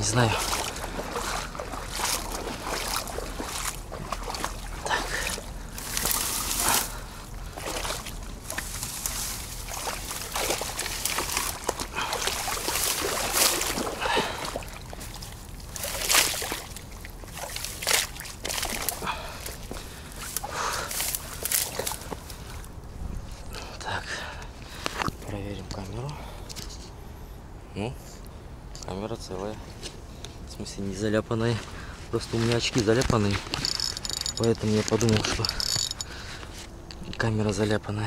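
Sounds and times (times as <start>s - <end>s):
shallow water sloshing: 0.0s - 23.5s.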